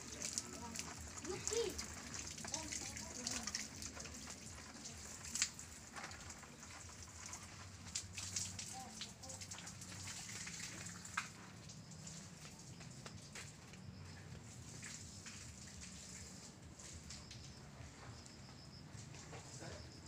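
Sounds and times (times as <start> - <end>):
sharp drips and taps: 0.0 - 19.9
light rain pattering: 0.0 - 20.0.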